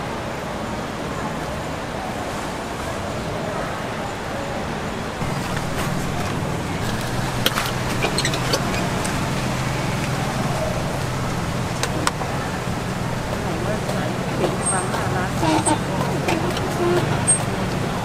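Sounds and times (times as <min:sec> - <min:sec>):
engine humming: 0:04.7 - 0:18.0.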